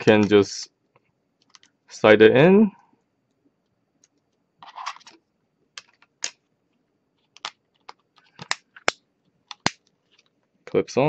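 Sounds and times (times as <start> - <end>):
plastic clicks and taps: 7.3 - 9.8.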